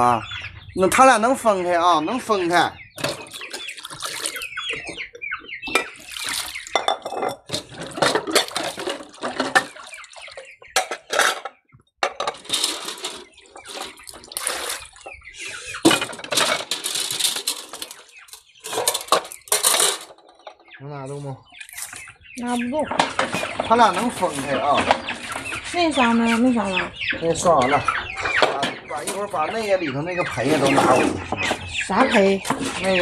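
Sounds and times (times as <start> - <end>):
water splashing in a bucket: 3.0 - 4.9, 5.7 - 10.6, 12.4 - 18.0
dishes and utensils clinking: 5.7 - 15.0, 15.8 - 20.6.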